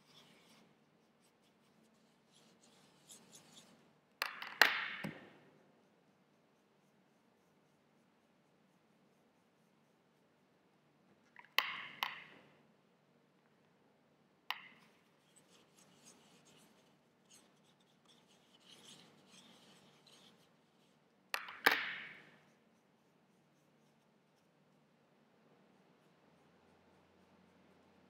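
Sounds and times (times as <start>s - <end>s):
paintbrush rubbing in paint: 0.0s - 3.9s, 15.0s - 21.1s
plastic palette clacking on table: 21.4s - 22.2s.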